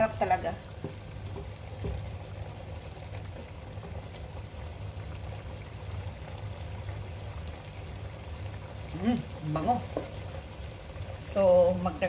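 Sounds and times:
food bubbling and sizzling in pot: 0:00.0 - 0:12.0
low steady hum: 0:00.0 - 0:12.0
wooden spoon stirring: 0:00.1 - 0:04.4, 0:09.5 - 0:10.4.

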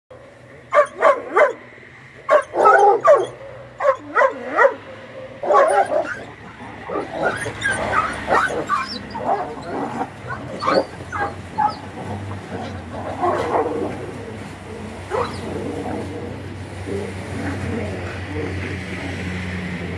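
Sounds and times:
dogs barking: 0:00.1 - 0:18.8
dog yelping: 0:00.7 - 0:01.6, 0:02.2 - 0:14.2, 0:15.0 - 0:16.1.

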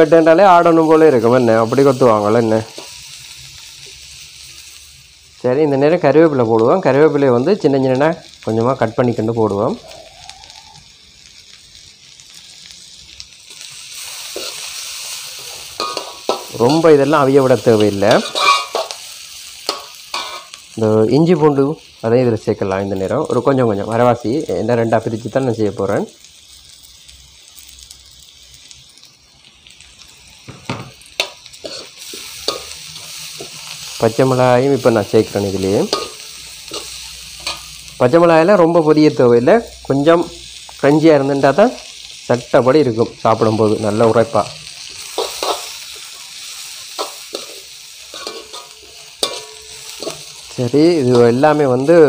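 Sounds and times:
vegetables sizzling in a wok: 0:00.0 - 0:52.0
metal spoon scraping a wok: 0:14.0 - 0:20.7, 0:31.2 - 0:34.0, 0:34.8 - 0:38.0, 0:44.6 - 0:51.4.

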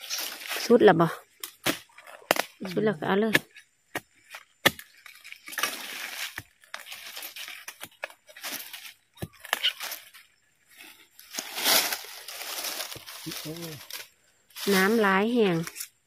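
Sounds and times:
dry leaves crunching and rustling: 0:00.0 - 0:00.9, 0:05.1 - 0:15.9.

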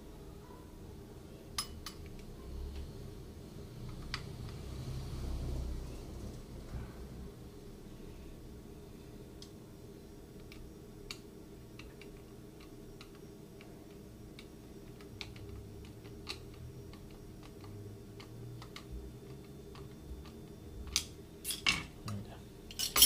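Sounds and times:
steady low hum: 0:00.0 - 0:23.0
clicks and taps of handling objects: 0:10.4 - 0:22.2.

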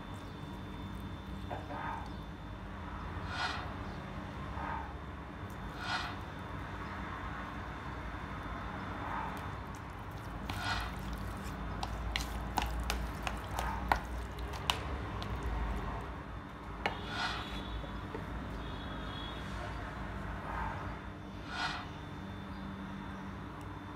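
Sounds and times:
soft squishing of marinade: 0:00.0 - 0:02.3, 0:09.2 - 0:18.7.

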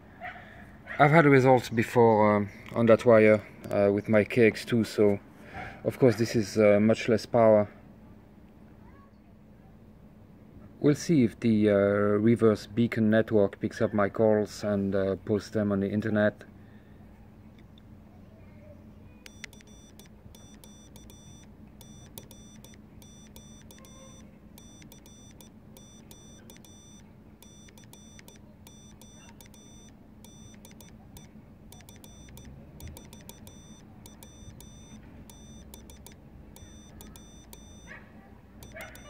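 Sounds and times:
low steady hum: 0:14.4 - 0:39.0
morse code beeps: 0:19.3 - 0:38.0, 0:38.6 - 0:39.0.

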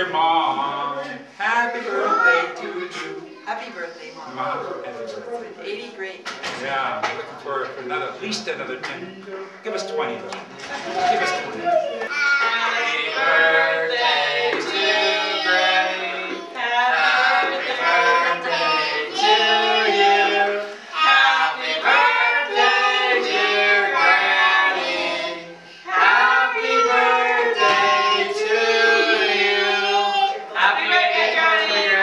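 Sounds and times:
adults and children singing: 0:00.0 - 0:03.4, 0:10.6 - 0:32.0.

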